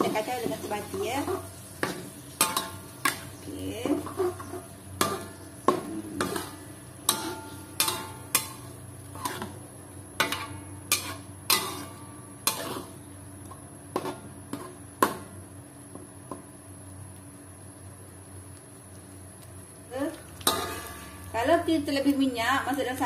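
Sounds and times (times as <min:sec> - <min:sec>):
metal spatula scraping a wok: 0:00.0 - 0:05.6, 0:06.2 - 0:09.6, 0:10.2 - 0:13.0, 0:20.4 - 0:21.3.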